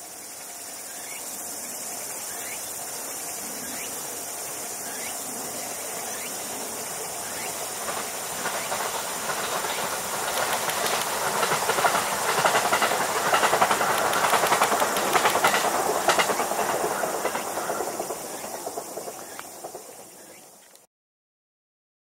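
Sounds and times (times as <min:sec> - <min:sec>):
train wheels clattering over rail joints: 0:06.0 - 0:20.8.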